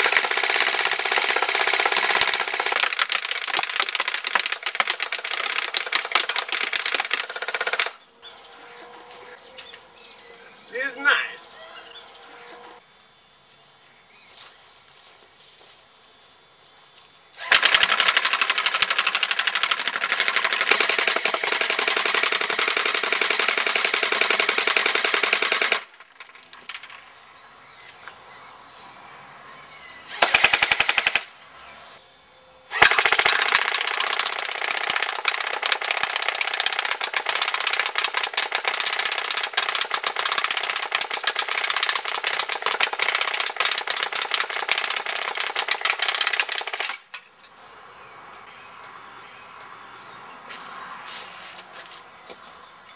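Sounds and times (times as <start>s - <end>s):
airsoft minigun firing full-auto: 0.0s - 8.0s, 17.4s - 25.9s, 30.1s - 31.3s, 32.7s - 47.0s.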